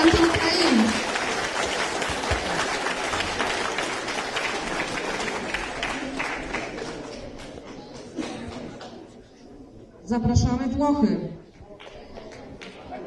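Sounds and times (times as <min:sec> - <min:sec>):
crowd applauding: 0:00.0 - 0:08.9.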